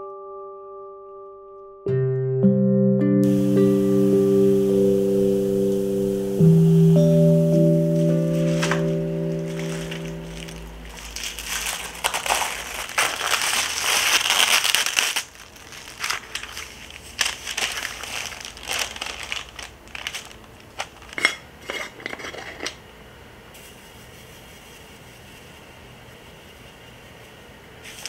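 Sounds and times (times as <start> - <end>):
baking paper crinkling: 8.0 - 22.8.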